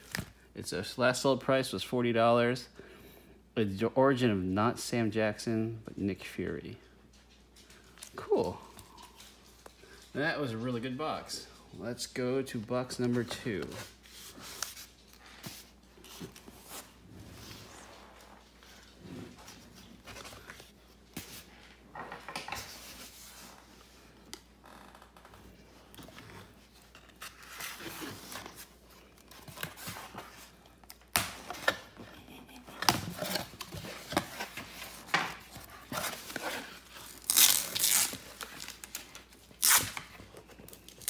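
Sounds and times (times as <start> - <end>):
packing tape tearing: 32.8 - 41.0.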